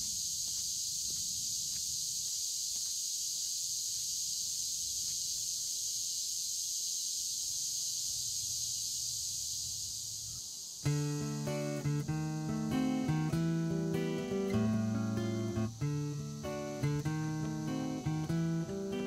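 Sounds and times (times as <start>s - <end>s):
footsteps on asphalt: 0.0s - 5.9s
insect chorus: 0.0s - 19.0s.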